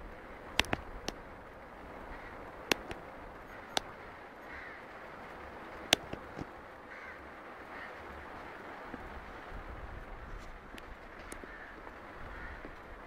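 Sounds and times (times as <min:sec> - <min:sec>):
steady background hiss: 0:00.0 - 0:13.0
sharp clicks: 0:00.5 - 0:01.2, 0:02.7 - 0:03.9, 0:05.9 - 0:06.5.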